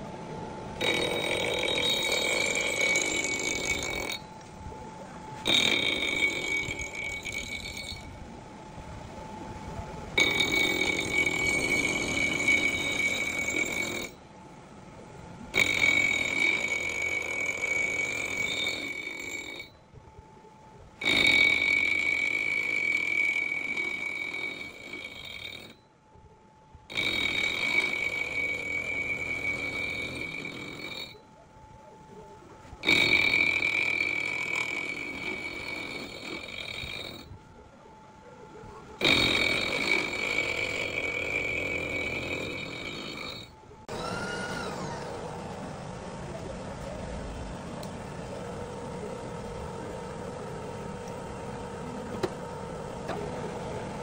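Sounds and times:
end mill cutting metal squeal: 0.8s - 4.5s, 5.3s - 8.2s, 10.2s - 14.2s, 15.5s - 19.8s, 21.0s - 25.9s, 26.9s - 31.3s, 32.8s - 37.4s, 39.0s - 45.6s.

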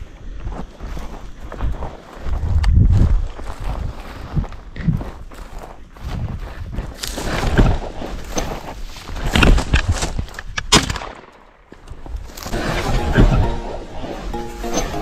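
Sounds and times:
footsteps on dry grass and stones: 0.0s - 10.5s
background music: 12.5s - 15.0s.

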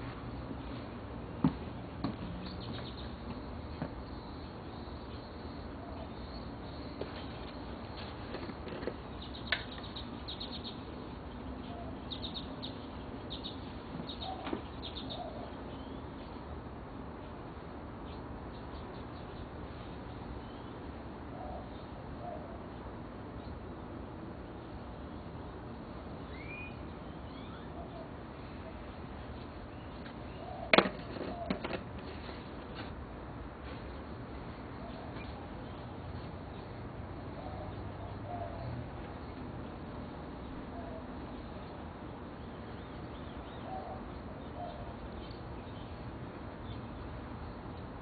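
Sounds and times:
small birds chirping: 0.0s - 32.9s, 33.6s - 48.0s
outdoor background hiss: 0.0s - 48.0s
steady background noise: 0.0s - 48.0s
faint bird chirps: 26.2s - 28.8s.

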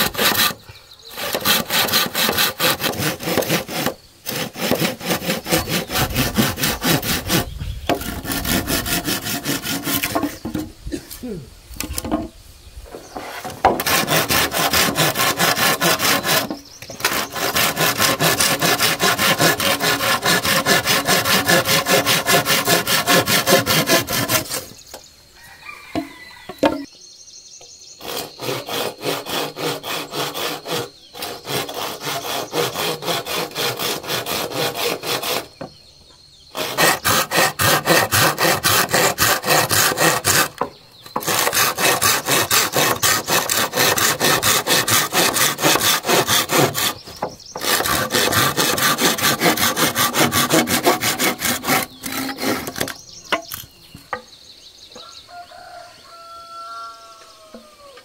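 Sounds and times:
hand saw cutting wood: 0.0s - 10.6s, 13.1s - 24.8s, 28.0s - 35.6s, 36.5s - 53.6s.

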